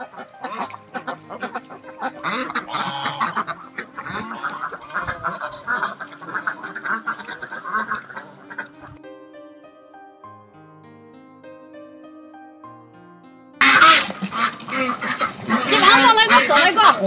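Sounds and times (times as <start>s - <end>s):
ducks quacking: 0.0s - 9.0s, 13.6s - 17.0s
soft background music: 0.0s - 17.0s.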